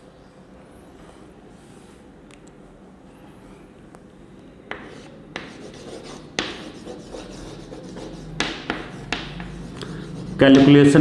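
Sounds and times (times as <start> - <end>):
chalk scratching on blackboard: 4.7 - 10.8
chalk tapping on blackboard: 4.7 - 10.9.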